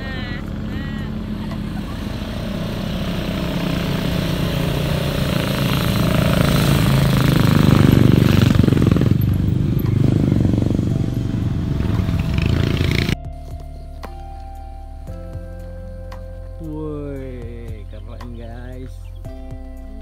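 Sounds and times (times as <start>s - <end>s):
motorcycles riding by: 0.0s - 13.2s.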